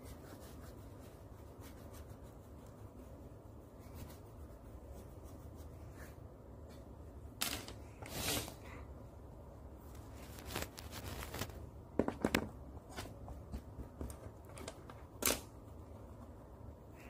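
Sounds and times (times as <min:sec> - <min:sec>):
paintbrush scrubbing on paper: 0:00.0 - 0:06.3.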